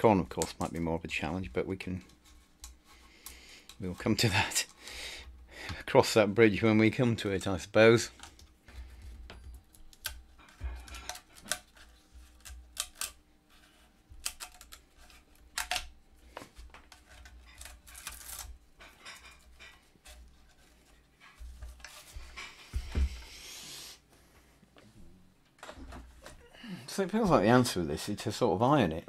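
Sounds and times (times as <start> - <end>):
small clicks taps and scrapes: 0.3 - 4.2.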